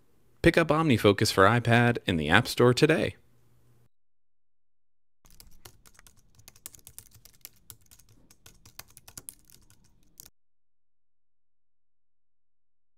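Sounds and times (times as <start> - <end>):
computer keyboard typing: 5.3 - 10.3.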